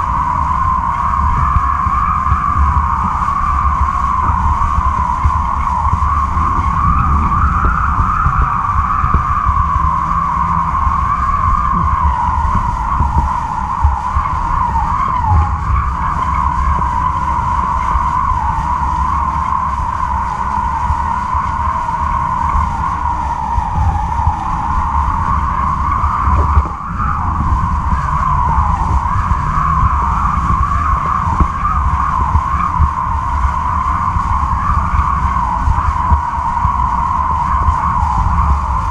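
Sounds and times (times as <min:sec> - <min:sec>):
high wind whistle: 0:00.0 - 0:38.9
low wind rumble on microphone: 0:00.0 - 0:38.9
wavering whine: 0:00.0 - 0:38.9.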